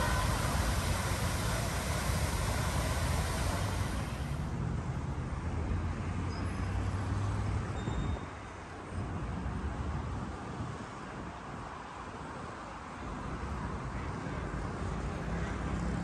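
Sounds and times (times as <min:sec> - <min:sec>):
fountain water splashing: 0:00.0 - 0:04.5
low engine drone: 0:00.0 - 0:04.6
city traffic noise: 0:00.0 - 0:16.0.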